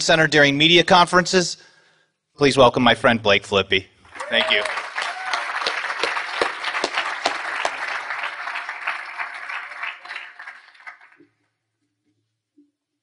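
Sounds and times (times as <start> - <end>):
audience applauding: 4.1 - 11.3.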